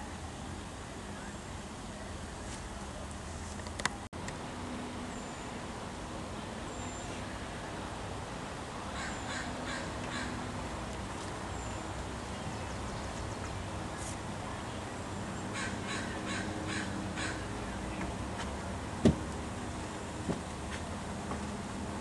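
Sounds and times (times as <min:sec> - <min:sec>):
low background noise: 0:00.0 - 0:22.0
crows cawing: 0:08.9 - 0:10.4, 0:15.6 - 0:17.5
dull thump: 0:19.0 - 0:19.3.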